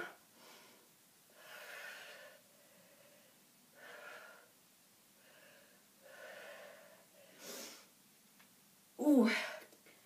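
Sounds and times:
woman breathing with exertion: 0.0s - 8.0s.

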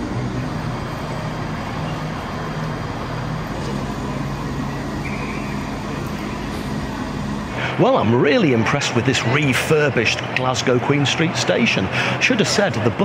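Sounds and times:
low wavering hum: 0.0s - 9.6s
station concourse noise: 0.0s - 13.0s.

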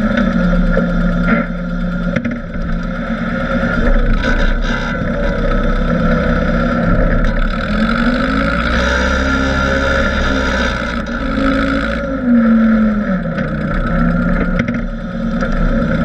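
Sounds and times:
tractor engine running: 0.0s - 16.0s.

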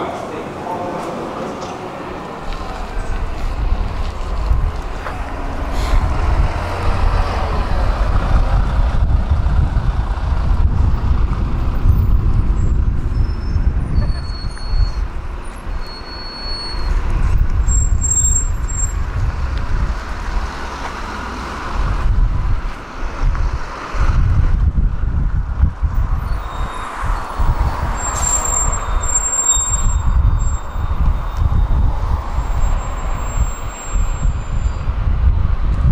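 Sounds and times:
road traffic passing: 0.0s - 35.9s
wind buffeting microphone: 2.0s - 16.0s, 16.6s - 35.9s
high whistling tones: 12.6s - 15.0s, 15.7s - 17.0s, 26.2s - 31.8s, 32.4s - 34.9s.

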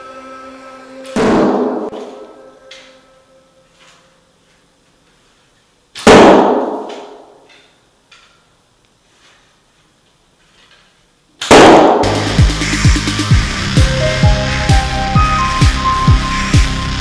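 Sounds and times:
music: 0.0s - 4.3s, 12.0s - 17.0s
arrows striking a board target: 1.2s - 2.2s.

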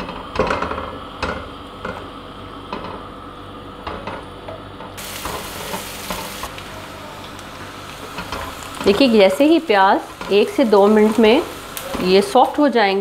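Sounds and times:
onions sizzling in oil: 5.0s - 13.0s.

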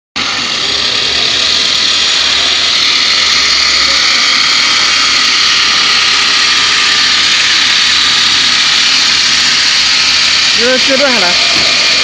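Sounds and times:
wood router running: 0.2s - 12.0s.

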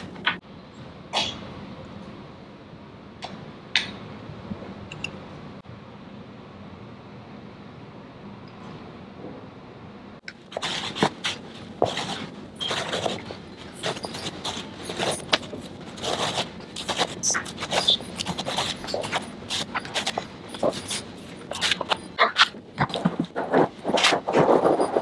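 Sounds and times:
wire brush scraping rug: 10.5s - 25.0s.

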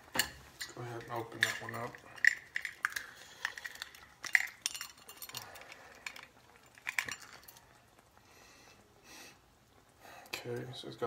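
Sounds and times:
bottle handling: 0.2s - 5.5s.

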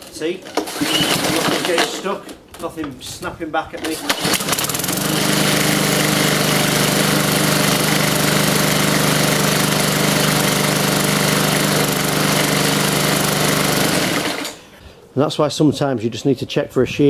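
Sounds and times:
lawnmower engine running: 0.0s - 2.0s, 3.8s - 14.7s
lawnmower pull-starting: 0.0s - 2.8s, 3.8s - 14.7s.

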